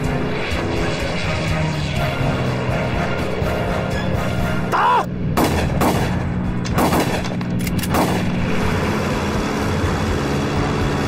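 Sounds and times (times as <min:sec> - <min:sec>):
propeller aircraft engine drone: 0:00.0 - 0:11.0
rifle shots: 0:05.4 - 0:08.4.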